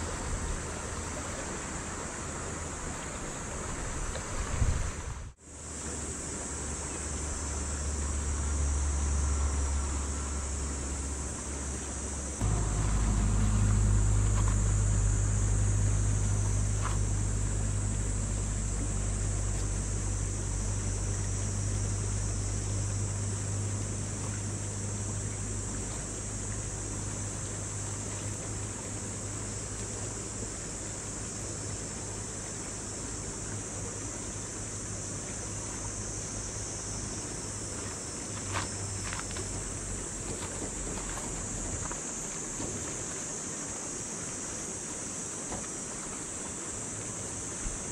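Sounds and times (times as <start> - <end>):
wind on microphone: 3.8 - 5.4
river rushing: 12.0 - 20.3.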